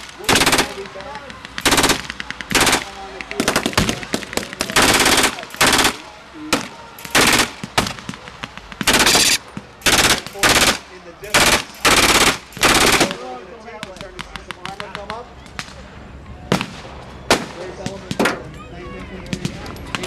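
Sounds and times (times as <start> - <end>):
machine guns firing bursts: 0.0 - 7.9, 8.8 - 13.2.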